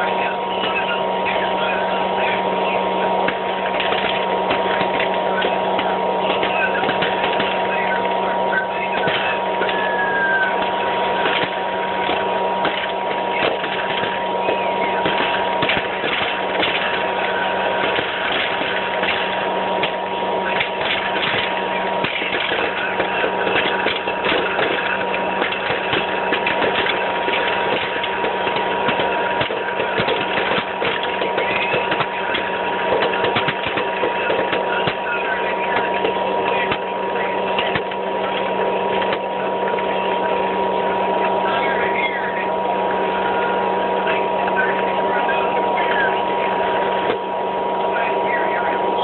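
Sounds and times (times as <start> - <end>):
popcorn popper fan whirring: 0.0 - 49.0
popcorn kernels popping: 3.2 - 40.3.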